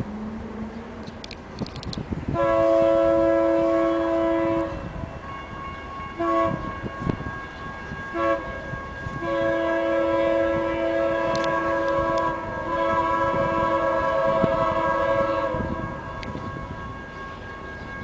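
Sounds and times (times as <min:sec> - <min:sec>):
locomotive air horn blasts: 0:02.3 - 0:07.3, 0:08.1 - 0:17.0.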